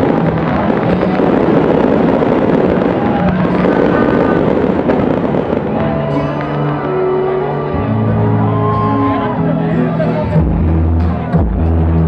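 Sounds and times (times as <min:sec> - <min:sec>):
fireworks crackling and popping: 0:00.0 - 0:07.7.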